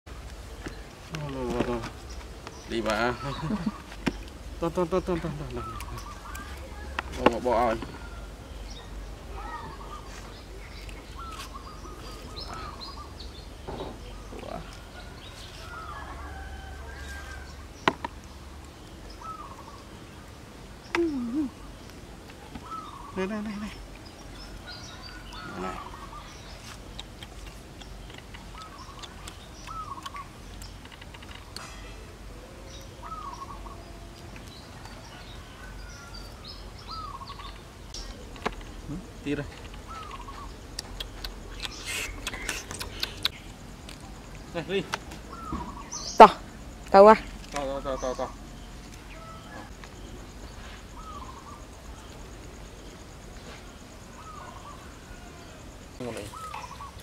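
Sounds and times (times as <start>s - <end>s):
low outdoor noise: 0.1s - 57.0s
birds chirping and whistling: 7.3s - 20.0s, 22.6s - 27.0s, 27.8s - 31.8s, 32.6s - 43.6s, 44.4s - 46.4s, 47.0s - 52.1s, 53.4s - 55.2s, 56.2s - 57.0s
sharp clicks: 40.8s - 44.0s
baby monkeys squealing and cooing: 41.4s - 43.4s.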